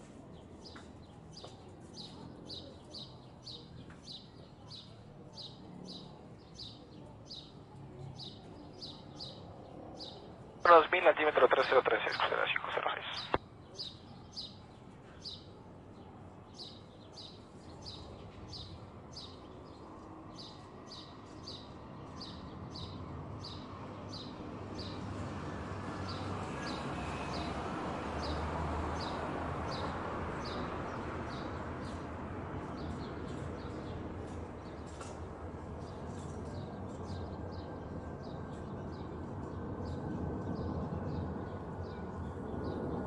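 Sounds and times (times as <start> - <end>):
jet airliner rumble: 10.7 - 13.4.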